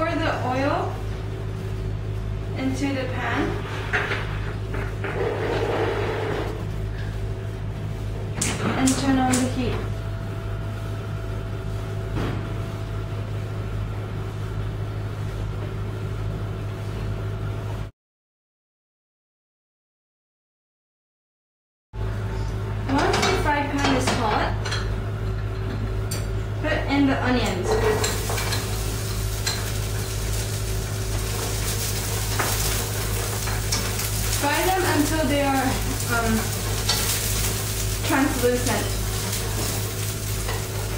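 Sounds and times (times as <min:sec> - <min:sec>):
low electrical hum: 0:00.0 - 0:17.9, 0:22.0 - 0:40.9
utensil stirring and clicking on pan: 0:27.7 - 0:40.9
onion sizzling in a pan: 0:27.9 - 0:40.9.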